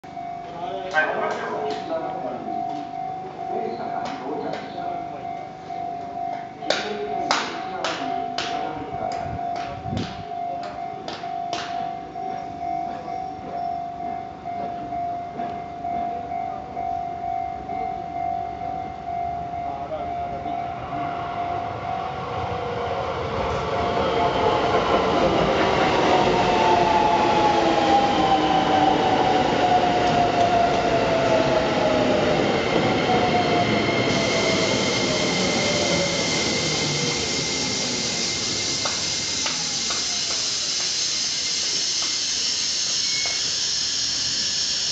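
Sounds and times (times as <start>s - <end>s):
electric train motor whine: 20.8s - 44.9s
brake squealing: 33.3s - 44.9s.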